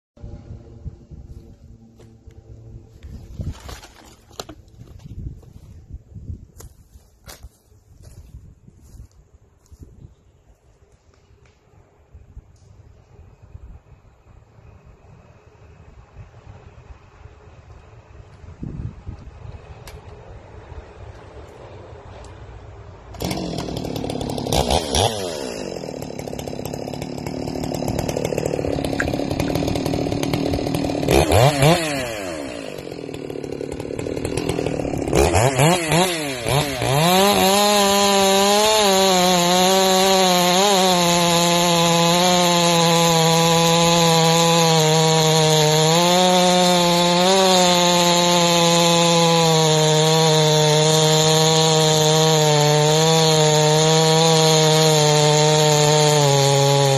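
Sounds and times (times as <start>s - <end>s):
chainsaw cutting log: 2.0s - 5.5s, 23.1s - 56.9s.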